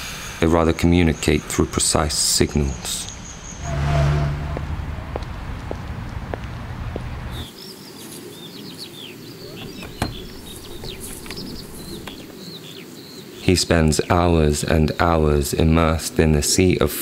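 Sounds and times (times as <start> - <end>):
birds chirping: 0.0 - 15.1
street traffic rumble: 0.8 - 7.5, 9.4 - 12.3
car driving past: 3.4 - 7.4.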